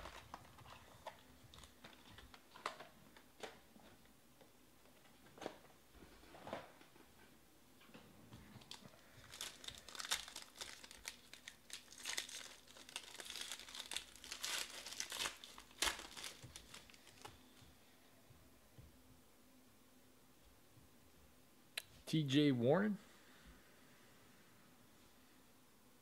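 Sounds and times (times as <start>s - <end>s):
foil wrapper tearing and crinkling: 0.0s - 2.8s, 8.6s - 17.4s.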